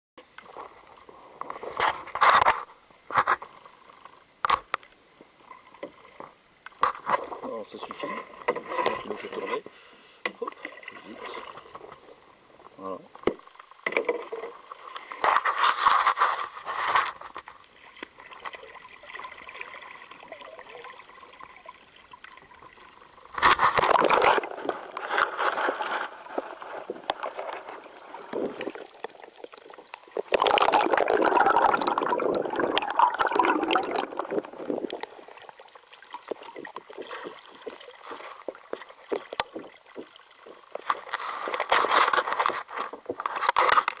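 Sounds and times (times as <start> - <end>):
water splashing from paddling: 13.2 - 44.0.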